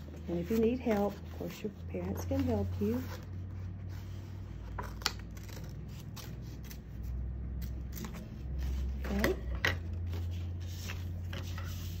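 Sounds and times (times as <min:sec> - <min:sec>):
scissors snipping paper: 0:04.9 - 0:08.4.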